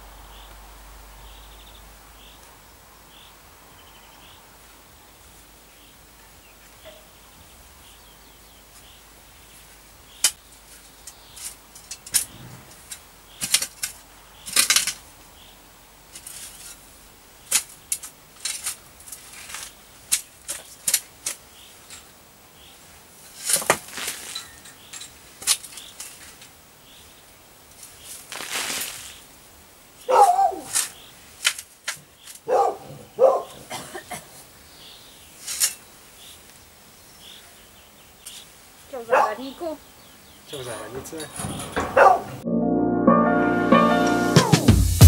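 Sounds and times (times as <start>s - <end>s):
digging tool cutting turf: 28.2s - 29.2s.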